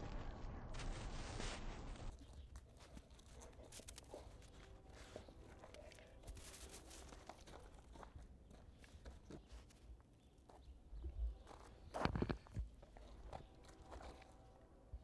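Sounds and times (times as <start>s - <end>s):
packed snow crunching: 0.0s - 8.0s.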